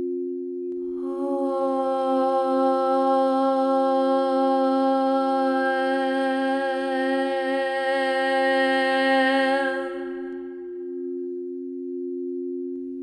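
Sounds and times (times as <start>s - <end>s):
two-note drone: 0.8s - 11.0s
person humming a held note: 0.8s - 11.2s.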